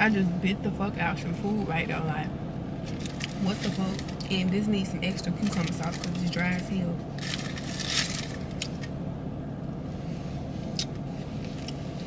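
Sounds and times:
steady low hum: 0.0 - 12.0
food wrapping crinkling: 2.9 - 4.3, 5.4 - 8.9.

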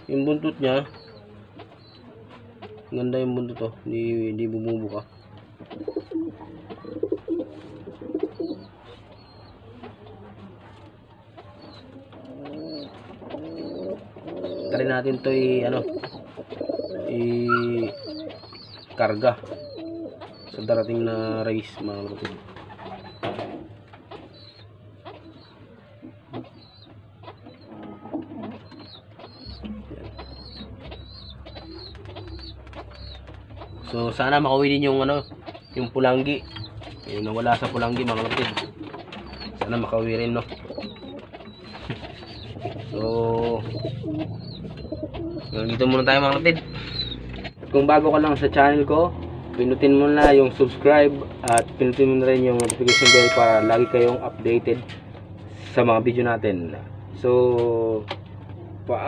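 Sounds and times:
pigeons cooing: 0.0 - 47.6
short high chirp: 52.8 - 54.5.

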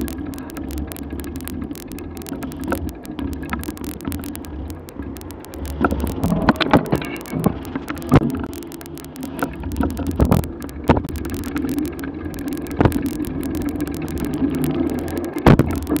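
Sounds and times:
sharp clicks and knocks: 0.0 - 16.0.

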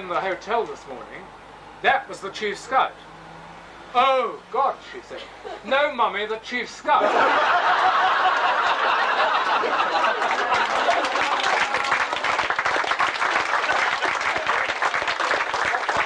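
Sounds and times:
crowd laughing and applauding: 7.0 - 16.0.

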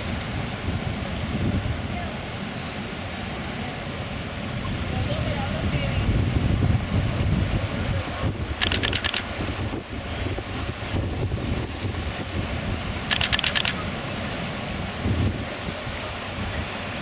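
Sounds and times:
wind buffeting microphone: 0.0 - 2.1, 4.5 - 14.1, 14.8 - 17.0
sea washing: 0.0 - 17.0
burst of rapid clicks: 8.6 - 9.2, 13.1 - 13.8.

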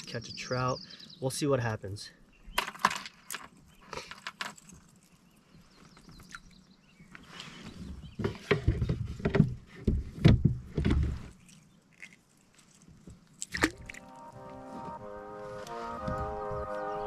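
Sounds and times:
low thumps against boat: 8.0 - 11.2
water splashing: 11.3 - 14.6.

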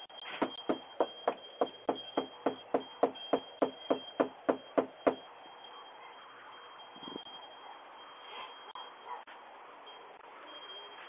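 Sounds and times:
rapid knocking on a door: 0.4 - 5.2.

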